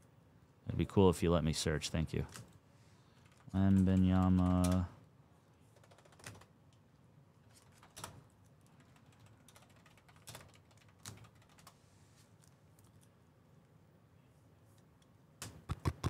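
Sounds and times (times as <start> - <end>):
keyboard typing clicks: 5.8 - 6.5.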